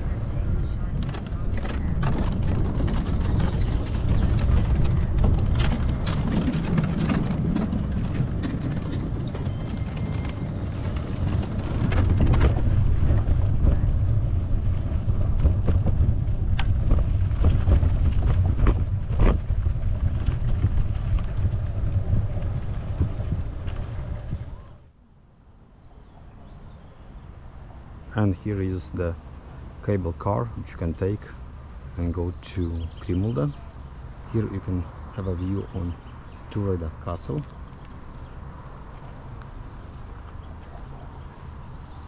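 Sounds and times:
bike clicks and rattles: 0:00.0 - 0:24.8, 0:35.2 - 0:42.0
wind rumbling on microphone: 0:00.0 - 0:24.9.

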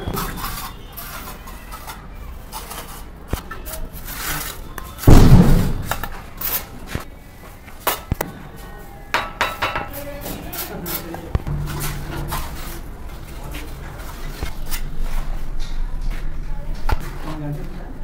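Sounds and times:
trowel scraping mortar: 0:00.1 - 0:05.0
heavy thud: 0:05.1 - 0:05.9, 0:11.4 - 0:13.1.

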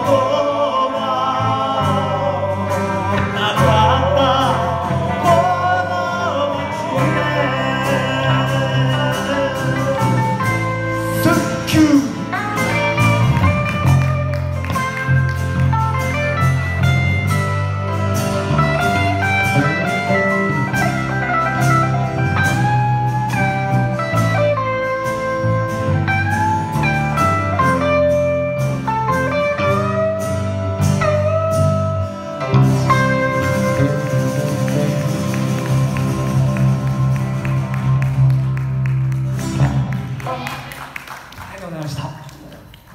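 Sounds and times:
person singing: 0:00.0 - 0:13.6, 0:32.1 - 0:37.2
bass guitar: 0:00.0 - 0:40.5
electric guitar: 0:00.0 - 0:40.8
acoustic guitar: 0:00.0 - 0:41.4.

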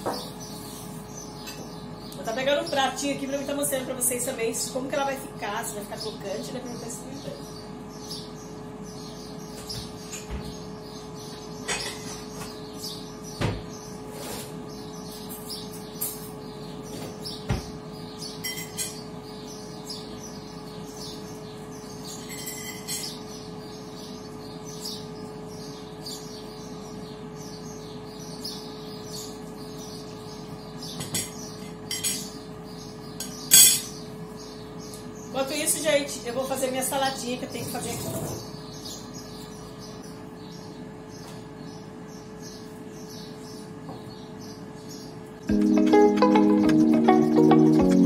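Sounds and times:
birds chirping: 0:00.0 - 0:48.0
dishes and cutlery clinking: 0:11.7 - 0:12.2, 0:18.4 - 0:19.0, 0:22.2 - 0:23.2.

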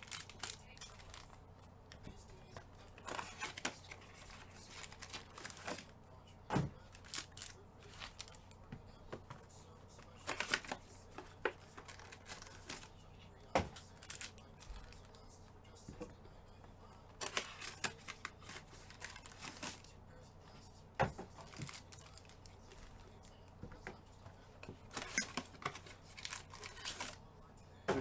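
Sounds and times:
foil wrappers tearing and crinkling: 0:00.0 - 0:01.3, 0:02.9 - 0:05.9, 0:06.8 - 0:08.6, 0:10.0 - 0:13.0, 0:13.8 - 0:15.2, 0:17.2 - 0:19.9, 0:21.4 - 0:22.9, 0:24.9 - 0:27.2.

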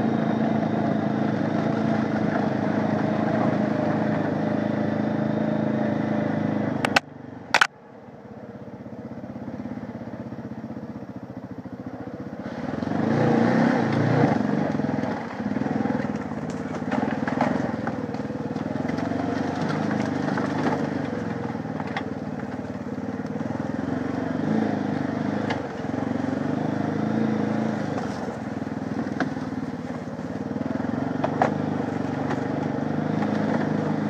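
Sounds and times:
atv engine revving: 0:00.0 - 0:07.7, 0:08.3 - 0:34.0
sharp clicks: 0:06.8 - 0:07.8.

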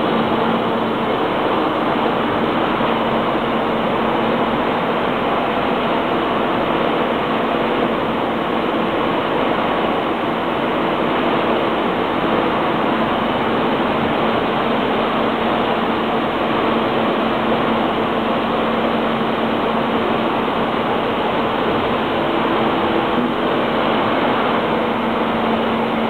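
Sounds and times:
casting and rolling line machinery: 0:00.0 - 0:26.0.

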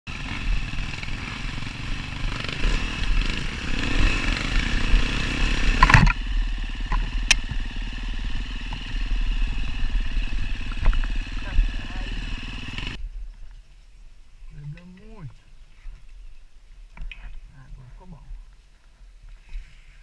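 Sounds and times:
dirt bike engine running: 0:00.1 - 0:13.0.

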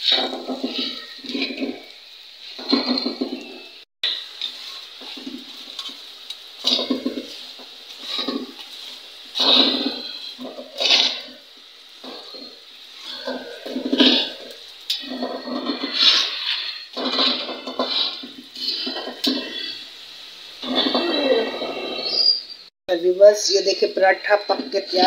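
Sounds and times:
flatbread sizzling in oil: 0:00.0 - 0:25.0.

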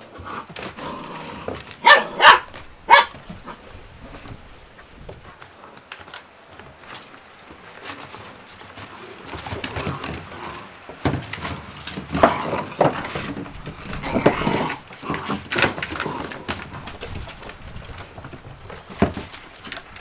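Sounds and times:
puppy noises: 0:00.0 - 0:04.4, 0:12.0 - 0:17.6.

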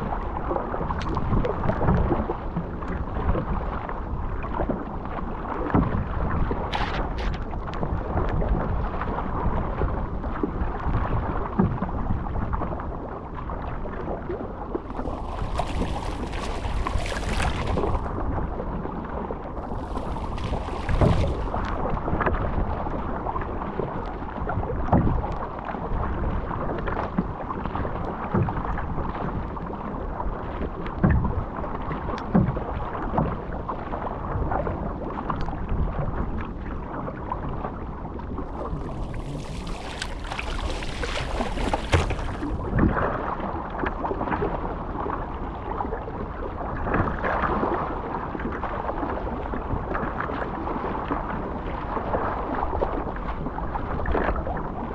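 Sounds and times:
water rushing along boat hull: 0:00.0 - 0:54.9
paddle splashes and knocks: 0:00.1 - 0:12.8, 0:14.7 - 0:18.8, 0:19.5 - 0:29.7, 0:38.3 - 0:44.6.

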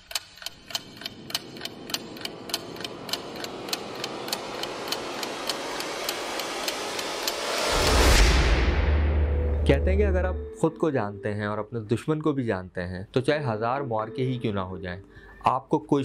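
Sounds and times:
clock-like ticking: 0:00.0 - 0:08.3
rising noise swell: 0:00.5 - 0:10.8.

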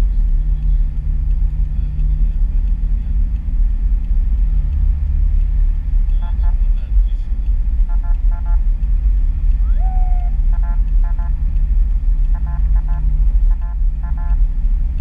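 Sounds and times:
car driving rumble: 0:00.0 - 0:15.0
rising whistle-like tone: 0:09.6 - 0:10.4.

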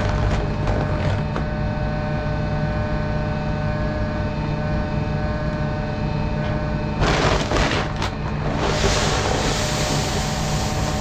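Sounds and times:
loud burst of noise: 0:07.0 - 0:11.0.

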